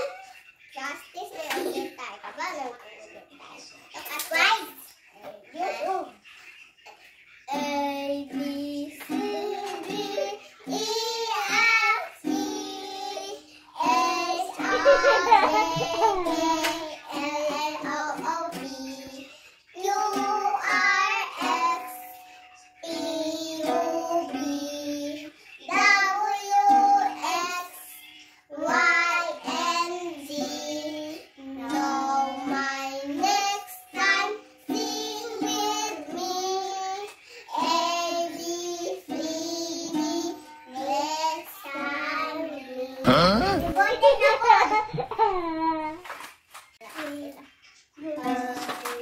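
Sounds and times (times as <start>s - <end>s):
girl singing: 7.5s - 46.1s, 46.8s - 49.0s
ukulele strumming: 8.3s - 19.2s.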